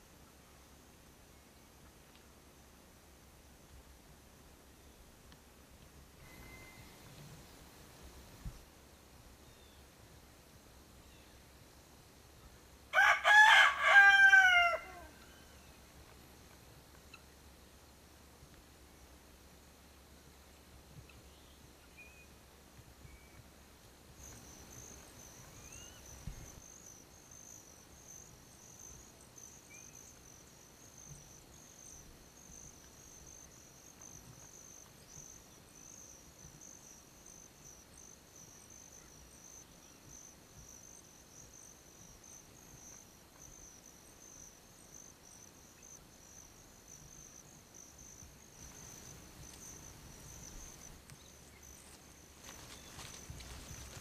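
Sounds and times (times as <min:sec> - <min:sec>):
faint insect chorus trilling: 0:00.0 - 0:54.0
bird chirps: 0:06.2 - 0:07.2, 0:24.2 - 0:26.6.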